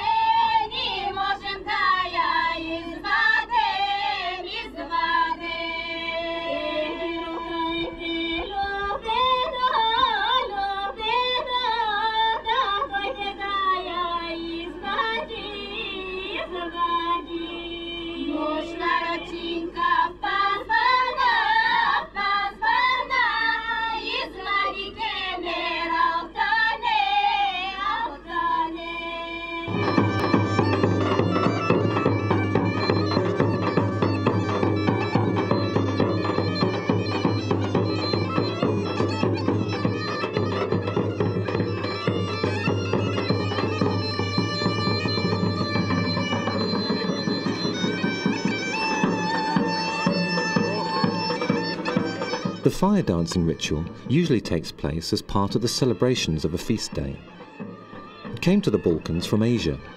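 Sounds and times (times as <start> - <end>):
ornamented wavering melody: 29.7 - 52.6
bagpipes: 29.7 - 59.9.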